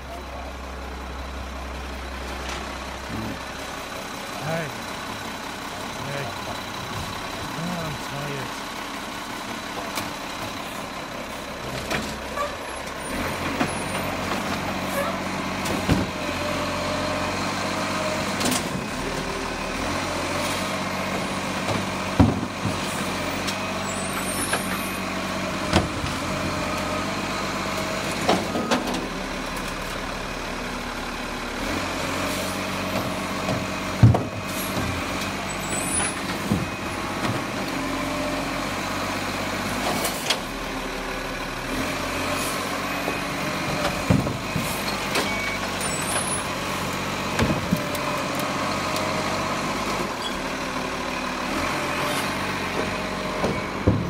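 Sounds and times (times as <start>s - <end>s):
garbage truck diesel engine running: 0.0s - 54.0s.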